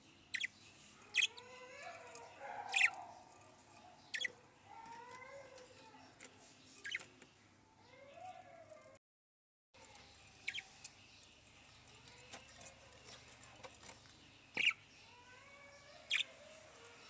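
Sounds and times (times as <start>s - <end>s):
budgerigars chirping: 0.3s - 1.5s, 2.5s - 3.3s, 4.0s - 4.4s, 6.8s - 7.1s, 10.4s - 10.8s, 14.5s - 14.8s, 16.1s - 16.4s.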